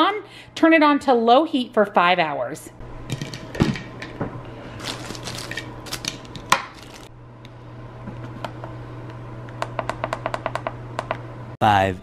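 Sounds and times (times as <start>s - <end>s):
plastic liner rustling: 4.8s - 6.1s.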